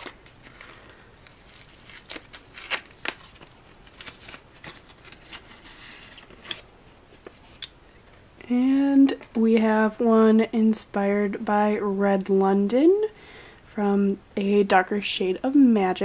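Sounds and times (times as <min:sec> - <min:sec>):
envelope crinkling and crackling: 0:00.0 - 0:06.7.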